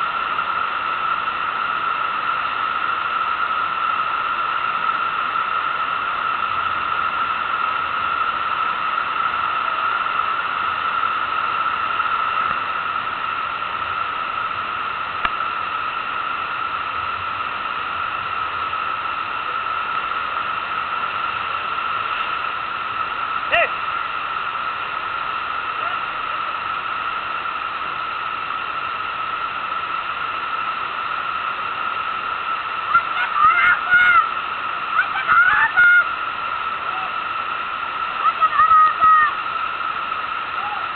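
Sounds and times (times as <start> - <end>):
rushing water roar: 0.0 - 40.9
person calling out: 23.5 - 23.8, 38.3 - 39.4.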